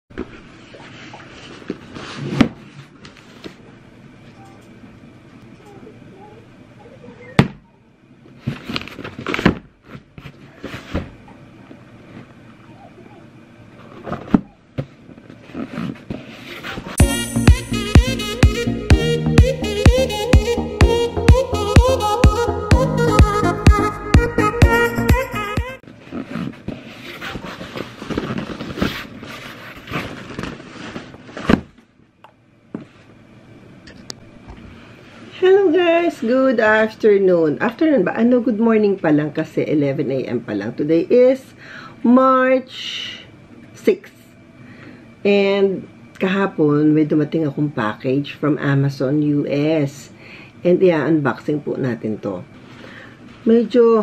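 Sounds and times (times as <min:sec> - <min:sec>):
cardboard box rustling and scraping: 0:26.1 - 0:31.6.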